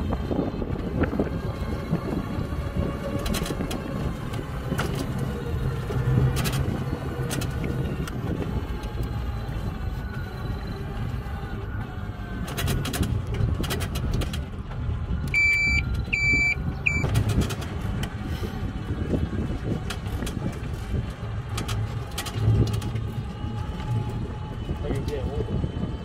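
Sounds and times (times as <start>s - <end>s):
road and tyre rumble: 0.0s - 26.0s
short electronic beeps: 15.3s - 17.2s.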